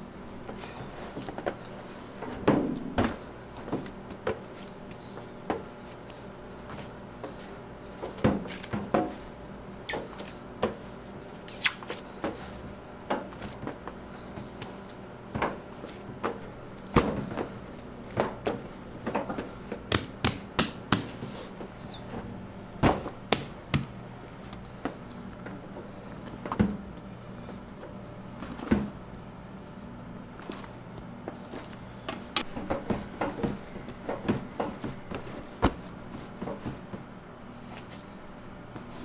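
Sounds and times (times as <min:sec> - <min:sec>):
steady low hum: 0:00.0 - 0:39.0
dough thumping and slapping: 0:02.3 - 0:04.5, 0:13.1 - 0:21.2, 0:22.8 - 0:25.0, 0:32.1 - 0:37.1.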